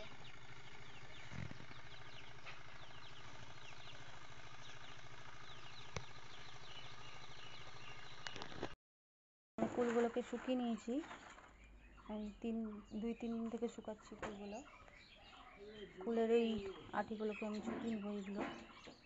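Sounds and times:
honeybees buzzing: 0.0s - 8.7s.

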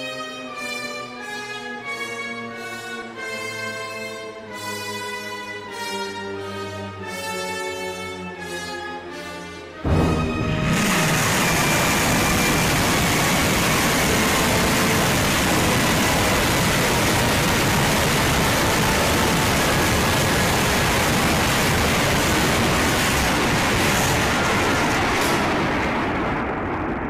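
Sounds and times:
rocket launchers firing: 9.9s - 27.0s.

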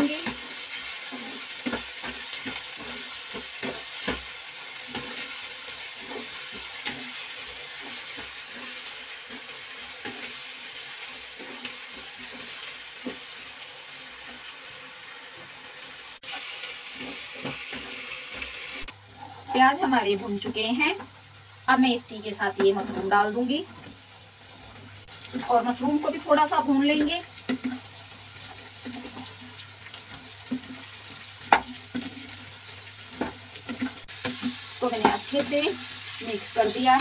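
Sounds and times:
onions sizzling in hot oil: 0.0s - 37.0s
wooden spatula scraping pan: 4.9s - 10.4s.

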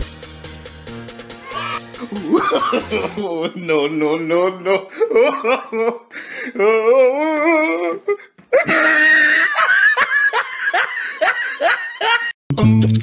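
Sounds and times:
long wavering laugh: 1.5s - 3.2s, 8.6s - 12.3s.

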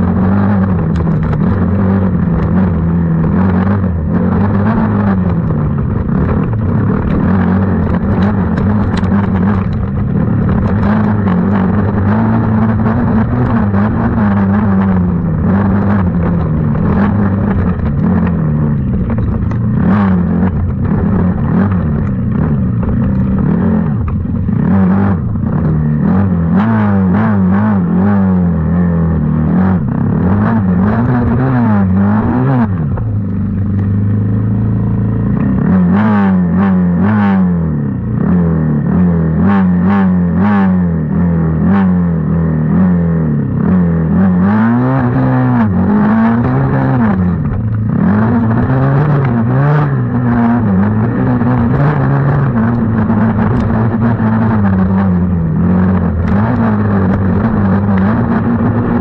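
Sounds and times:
small racing engine revving: 0.0s - 33.0s, 35.2s - 59.0s
machine rattling over rough ground: 0.6s - 26.0s.

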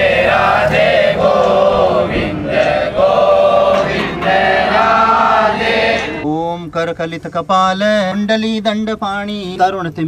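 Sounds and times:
voices chanting together: 0.0s - 6.3s.

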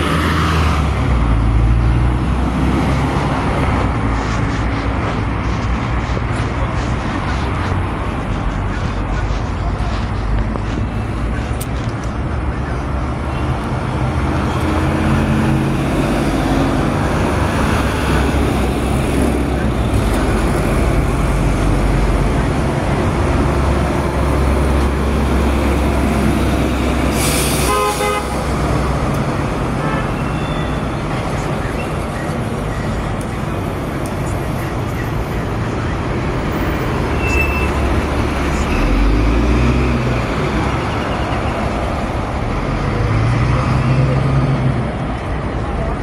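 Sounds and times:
bus and cars driving past: 0.0s - 46.0s
brief air hiss: 27.1s - 28.0s
short horn toot: 27.2s - 28.4s.

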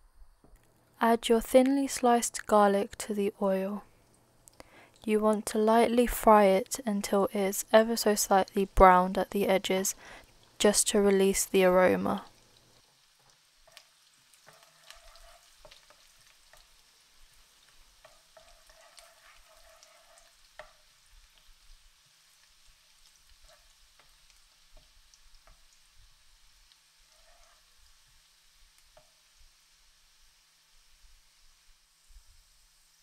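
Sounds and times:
garlic sizzling in oil: 1.2s - 33.0s
wooden spoon scraping a pan: 13.2s - 25.8s, 27.0s - 28.1s.

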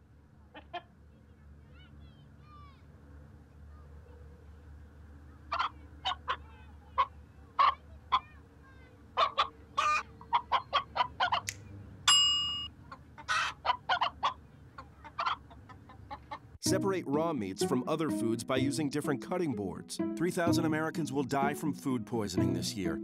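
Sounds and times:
hen clucking: 0.5s - 0.9s, 5.5s - 8.4s, 9.2s - 11.6s, 12.7s - 16.6s.

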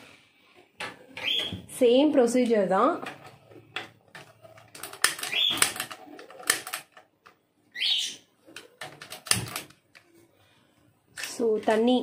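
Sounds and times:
parrot squawking: 1.2s - 1.6s, 7.7s - 8.3s.

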